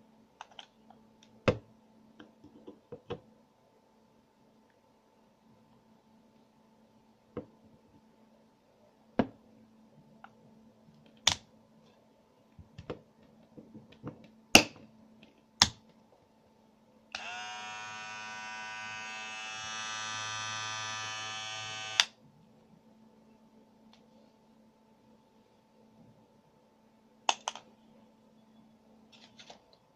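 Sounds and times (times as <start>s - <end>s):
electric shaver buzzing: 17.2s - 22.1s.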